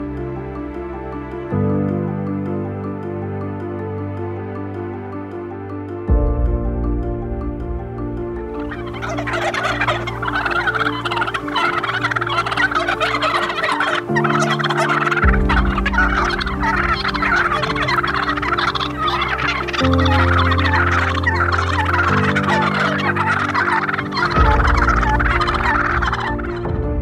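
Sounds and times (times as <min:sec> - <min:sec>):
soft background music: 0:00.0 - 0:27.0
turkeys gobbling: 0:08.6 - 0:26.6.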